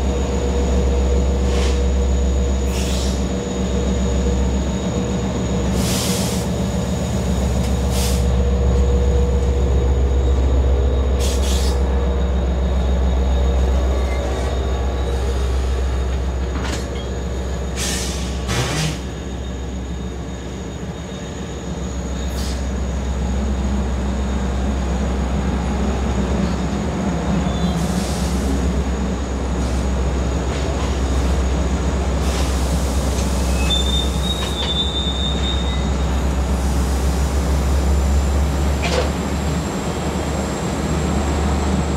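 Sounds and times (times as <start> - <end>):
diesel engine low rumble: 0.0 - 41.9
brief high squeal: 33.4 - 36.0.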